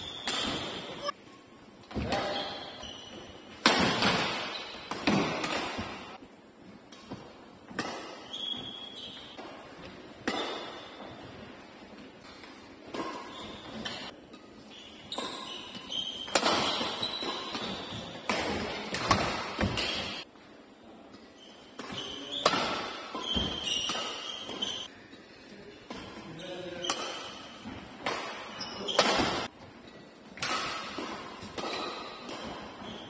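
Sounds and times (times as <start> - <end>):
rackets striking shuttlecock: 0.0 - 1.2, 3.1 - 6.2, 15.1 - 20.3, 30.4 - 33.0
court shoes squeaking: 0.0 - 6.2, 6.9 - 20.3, 21.1 - 33.0.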